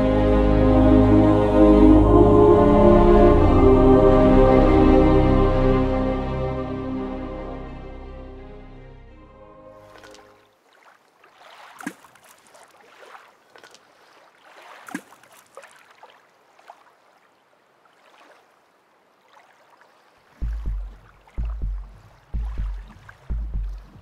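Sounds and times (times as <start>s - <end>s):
deep bass beat: 20.4s - 24.0s.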